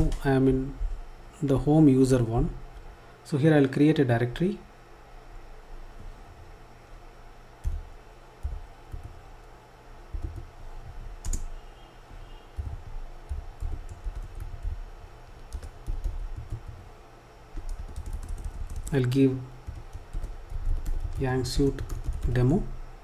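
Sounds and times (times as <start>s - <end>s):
computer keyboard typing: 7.6s - 9.5s, 10.1s - 11.5s, 12.6s - 16.9s, 17.6s - 22.6s.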